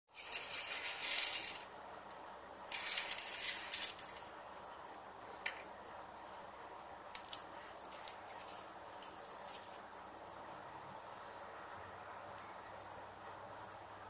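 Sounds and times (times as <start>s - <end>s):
fried snacks clattering on plate: 0.1s - 1.7s, 2.7s - 4.3s.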